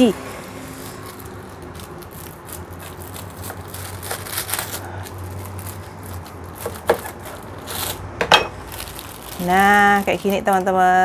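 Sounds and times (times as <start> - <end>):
knife cutting through plastic bag: 0.7 - 8.0.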